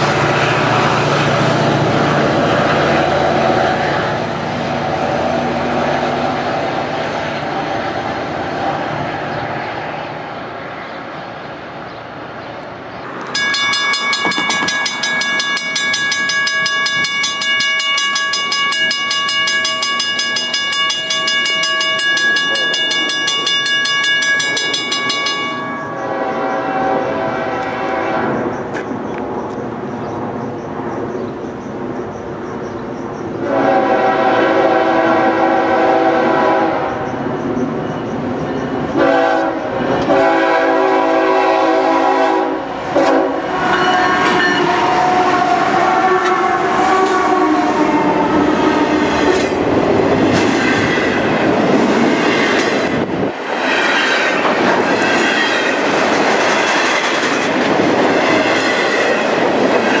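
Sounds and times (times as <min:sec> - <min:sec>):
train wheels clacking over rail joints: 0:13.1 - 0:26.2, 0:46.1 - 1:00.0
locomotive air horn blasts: 0:25.9 - 0:28.4, 0:33.4 - 0:37.0, 0:39.0 - 0:49.4.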